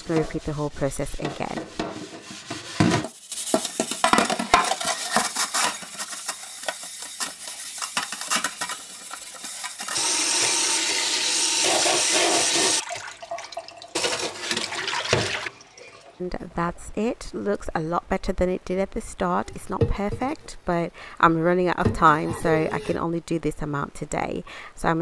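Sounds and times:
metal scourer scrubbing ceramic dish: 0:00.0 - 0:09.9
tap water running: 0:08.5 - 0:16.2.

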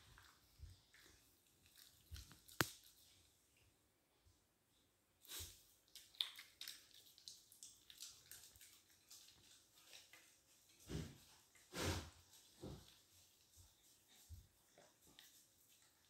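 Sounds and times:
dog licking: 0:05.9 - 0:10.8.

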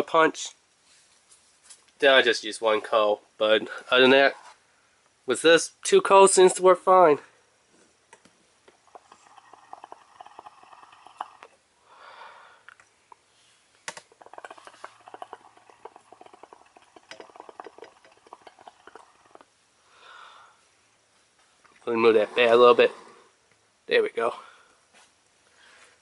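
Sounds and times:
hookah water bubbling: 0:08.7 - 0:11.6, 0:13.9 - 0:19.5
soft breath: 0:11.8 - 0:13.8, 0:19.8 - 0:20.8, 0:22.2 - 0:23.4, 0:25.4 - 0:26.0.

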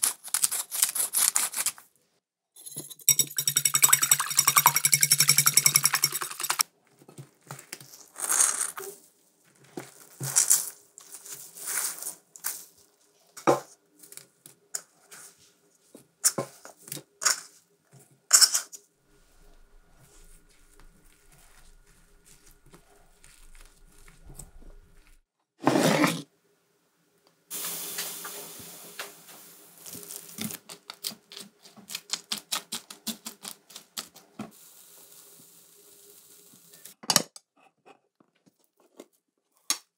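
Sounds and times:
spatula squelching and scraping bowl: 0:02.6 - 0:06.6, 0:19.1 - 0:26.2.

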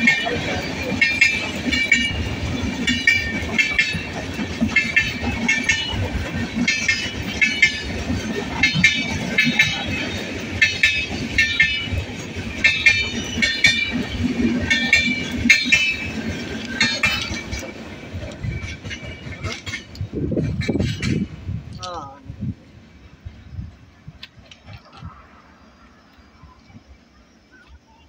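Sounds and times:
train wheels clattering over rail joints: 0:00.0 - 0:21.4
train running gear rumble: 0:00.0 - 0:28.0.

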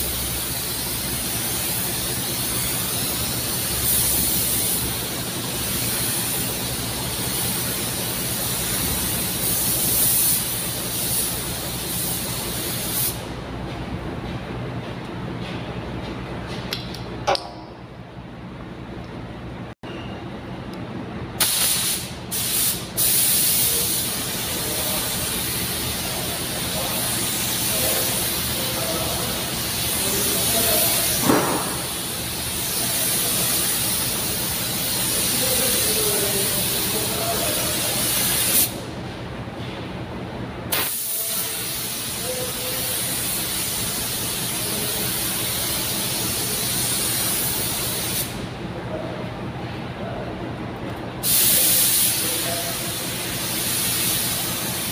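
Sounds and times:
steady low hum: 0:00.0 - 0:40.8
paint spray gun hissing: 0:21.4 - 0:38.8.

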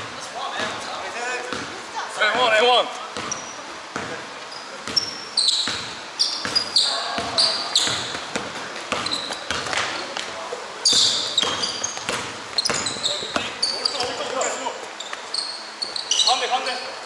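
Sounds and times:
basketball bouncing: 0:01.5 - 0:01.8, 0:03.2 - 0:04.2, 0:04.8 - 0:10.3, 0:10.9 - 0:14.4
sneaker squeaks on gym floor: 0:03.2 - 0:10.2, 0:10.8 - 0:17.0
players' voices: 0:06.6 - 0:17.0.

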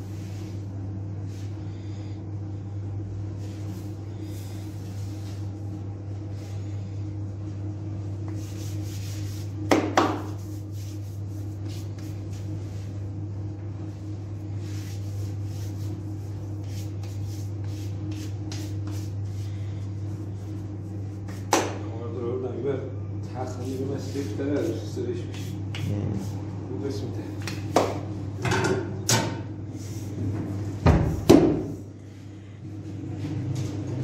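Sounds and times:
rubbing and scraping strokes: 0:08.3 - 0:12.9, 0:14.5 - 0:21.5.

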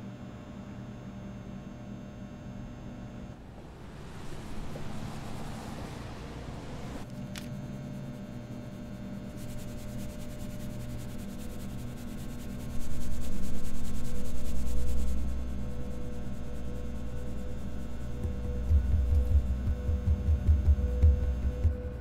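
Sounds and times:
washing machines humming: 0:02.4 - 0:09.4, 0:15.1 - 0:22.0
low rumble: 0:03.3 - 0:07.1, 0:16.8 - 0:22.0.

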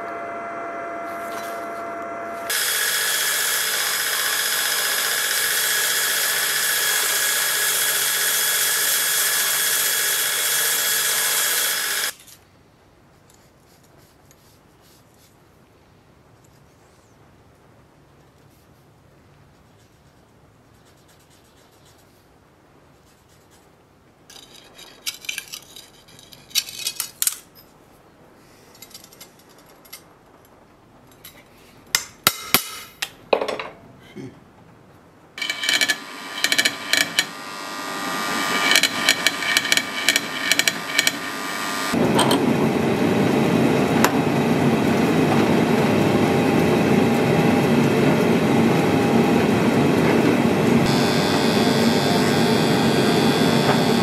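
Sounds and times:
machine running with rattling hiss: 0:00.0 - 0:12.2, 0:35.4 - 0:54.0.

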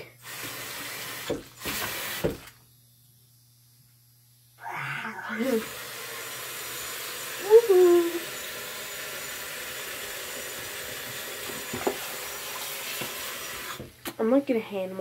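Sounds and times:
water pouring into sink: 0:05.5 - 0:13.8.

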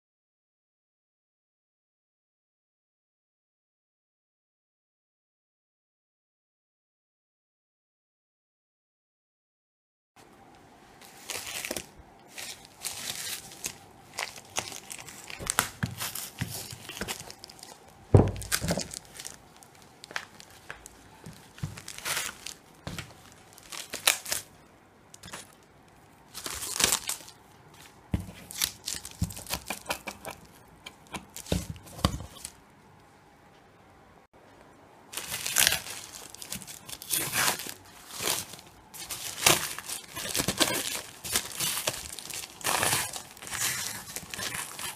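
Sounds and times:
plastic wrap crinkling and tearing: 0:11.0 - 0:25.7, 0:26.3 - 0:32.6, 0:35.1 - 0:44.9.

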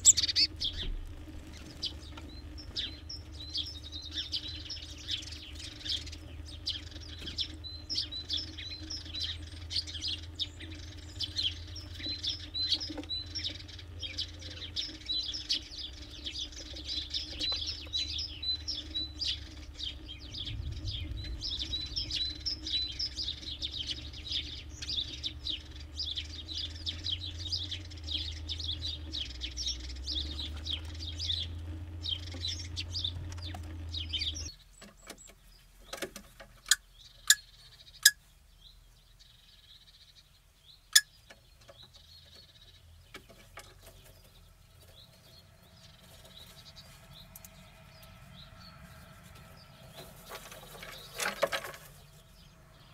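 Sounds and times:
steady low rumble: 0:00.0 - 0:34.6
small songbirds chirping: 0:00.0 - 0:52.9.

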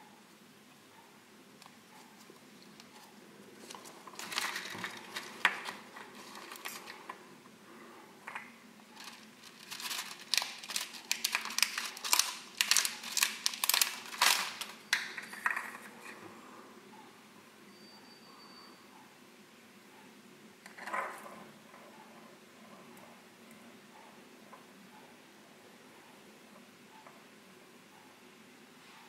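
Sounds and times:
cellophane bag crinkling: 0:03.6 - 0:07.2, 0:08.9 - 0:15.9.

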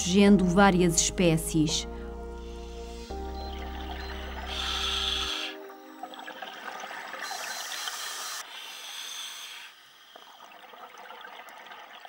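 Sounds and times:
water hiss: 0:02.4 - 0:10.7
exhaled bubbles hissing: 0:02.4 - 0:12.0.

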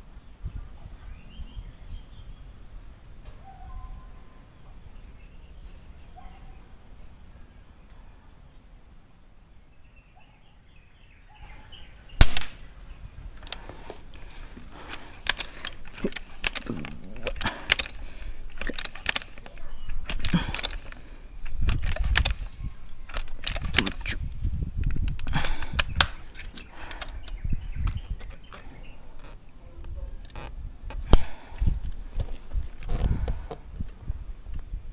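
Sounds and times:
air rifle shot crack: 0:12.2 - 0:12.8
rifle clicks while pumping: 0:13.4 - 0:29.3, 0:30.2 - 0:33.5.

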